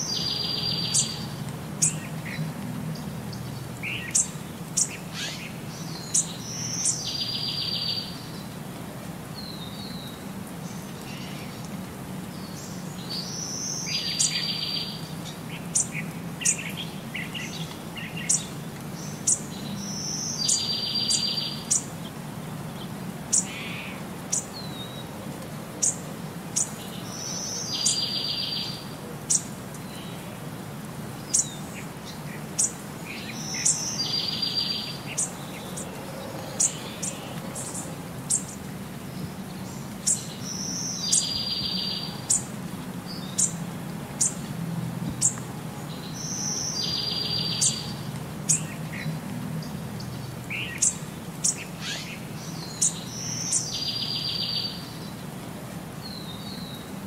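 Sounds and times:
bird chirping: 0:00.0 - 0:08.5, 0:12.4 - 0:21.9, 0:26.6 - 0:30.2, 0:31.2 - 0:43.6, 0:45.2 - 0:55.2.

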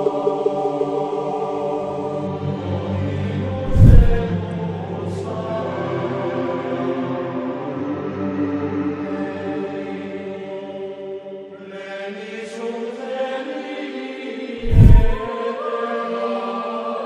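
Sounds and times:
loud low thump: 0:03.7 - 0:04.3, 0:14.6 - 0:15.3.

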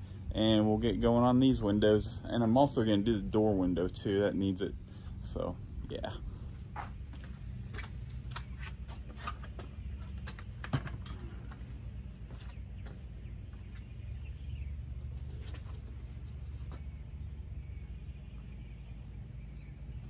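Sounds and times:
steady low hum: 0:00.0 - 0:20.0
footsteps and scuffs on concrete: 0:06.5 - 0:17.3.

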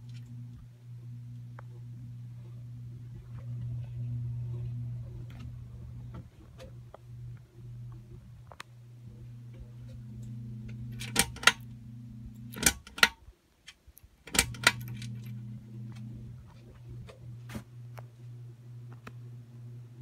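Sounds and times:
ceiling fan motor buzzing: 0:00.0 - 0:20.0
sharp clicks: 0:12.3 - 0:15.3.

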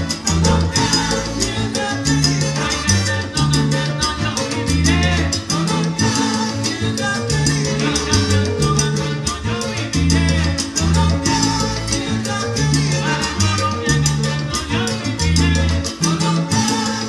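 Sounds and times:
dense percussion: 0:00.0 - 0:02.8, 0:07.0 - 0:15.4
bass line: 0:00.0 - 0:17.0
salsa band playing: 0:00.0 - 0:17.0.

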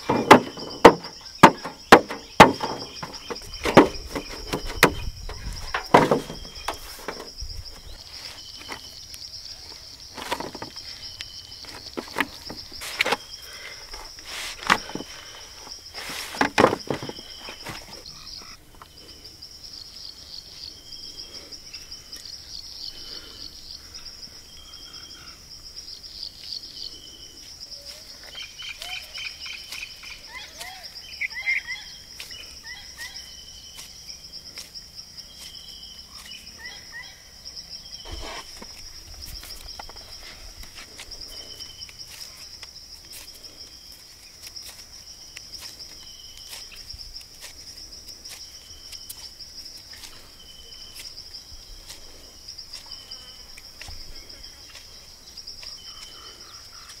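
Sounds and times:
birds calling: 0:00.0 - 0:19.4, 0:26.7 - 0:34.3, 0:35.3 - 0:42.4
insects buzzing and chirping: 0:00.0 - 0:57.0.

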